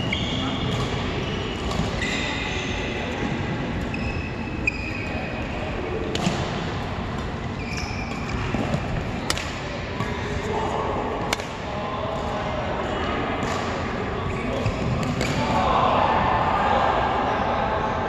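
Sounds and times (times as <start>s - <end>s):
racket hitting shuttlecock: 8.0s - 10.2s, 11.3s - 11.6s.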